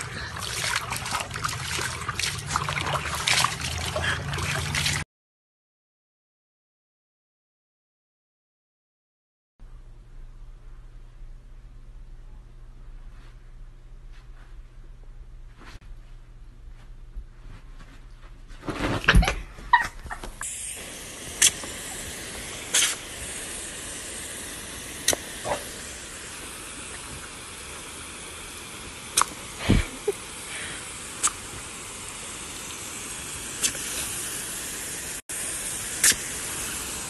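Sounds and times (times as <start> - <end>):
hose spray hissing: 20.4 - 37.0.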